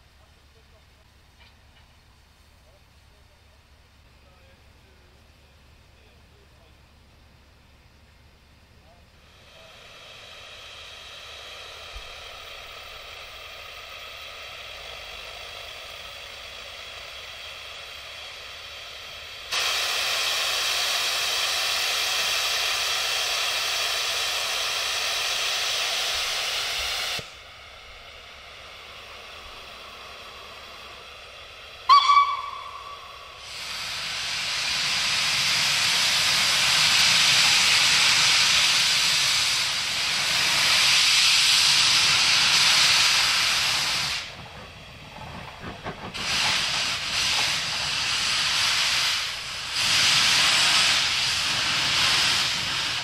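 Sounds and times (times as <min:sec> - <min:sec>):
steam locomotive hissing: 0:00.0 - 0:06.8, 0:07.5 - 0:53.0
steam hissing from drain cocks: 0:08.8 - 0:53.0
steam whistle toot: 0:31.8 - 0:33.8.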